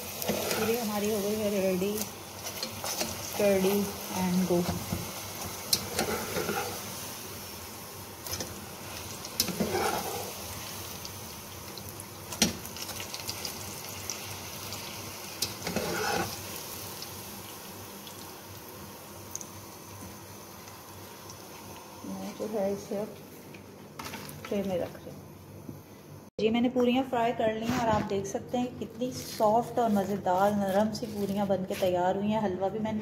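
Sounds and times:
oil sizzling while deep-frying: 0:00.0 - 0:24.5.

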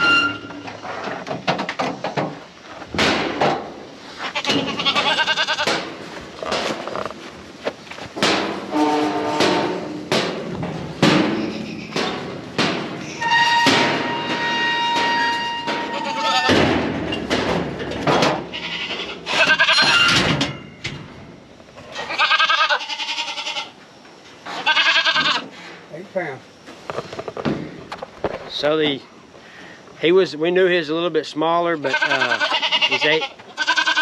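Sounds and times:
metal pen gates clanking: 0:00.0 - 0:02.4, 0:04.4 - 0:07.1, 0:08.2 - 0:21.2
goats bleating: 0:04.2 - 0:05.8, 0:15.6 - 0:16.6, 0:18.5 - 0:20.1, 0:22.0 - 0:23.8, 0:24.6 - 0:25.4, 0:31.8 - 0:34.0.

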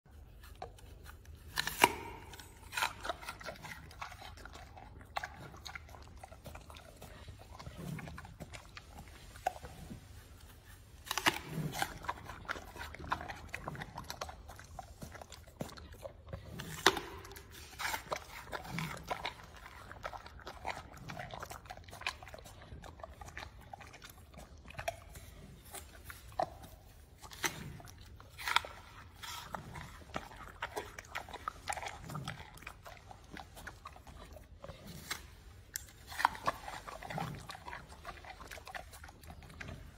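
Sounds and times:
animal chewing: 0:00.1 - 0:39.9
loud crunches of apple: 0:01.4 - 0:04.8, 0:11.0 - 0:14.3.

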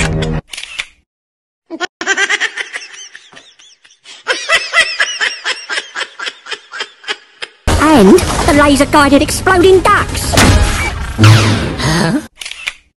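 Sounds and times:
cartoon characters laughing: 0:01.7 - 0:07.7.

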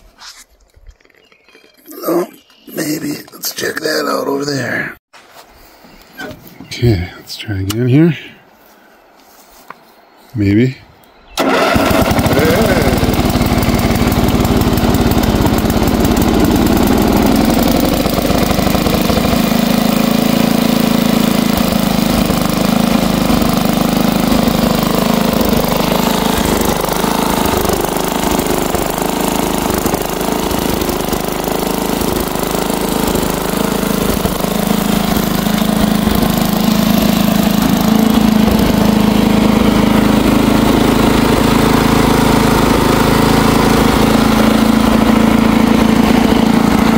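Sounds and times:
tractor engine starting and running: 0:11.4 - 0:46.9.

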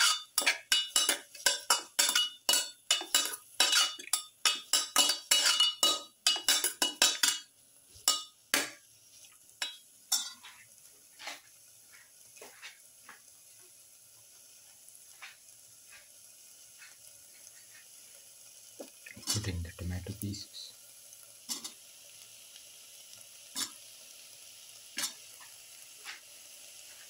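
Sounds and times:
metal spoon scraping a pan: 0:00.0 - 0:11.5, 0:21.5 - 0:21.8, 0:23.5 - 0:23.9, 0:25.0 - 0:27.0
onions sizzling in oil: 0:00.0 - 0:27.0.

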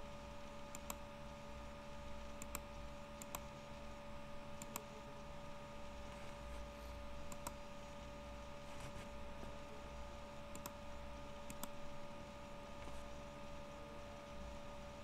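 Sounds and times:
steady electrical hum: 0:00.0 - 0:15.0
faint computer mouse clicks: 0:00.7 - 0:01.0, 0:02.4 - 0:03.5, 0:04.6 - 0:04.9, 0:07.3 - 0:07.6, 0:10.5 - 0:10.8, 0:11.4 - 0:11.8.

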